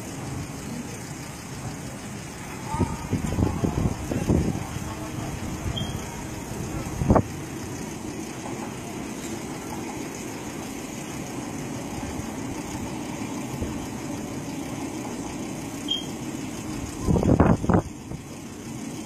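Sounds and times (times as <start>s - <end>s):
low background rumble: 0.0s - 19.0s
faint high chirp: 5.7s - 6.1s, 15.9s - 16.2s.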